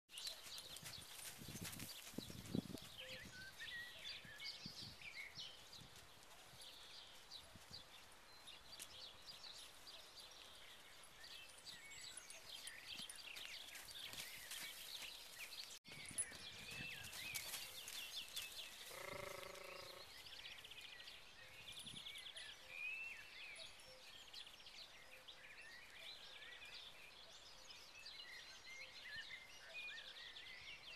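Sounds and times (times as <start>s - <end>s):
horse hooves thudding on sand: 0.1s - 19.6s.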